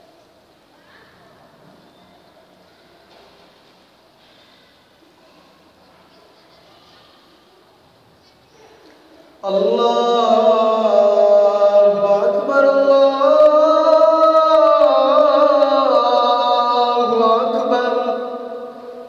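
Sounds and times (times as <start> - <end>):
call to prayer chanted: 9.4 - 19.0.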